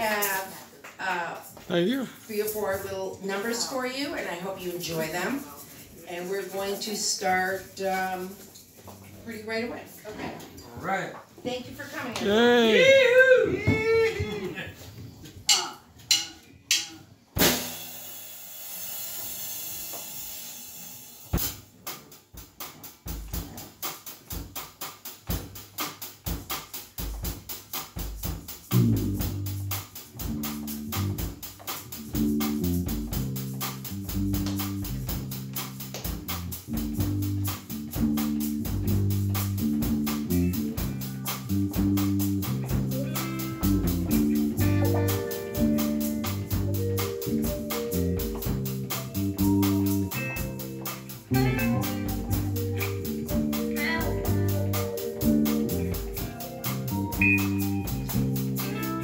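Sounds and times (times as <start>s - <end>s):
drum beat: 12.2s - 14.6s, 21.3s - 59.0s
electric bass: 28.6s - 59.0s
electric guitar: 35.9s - 59.0s.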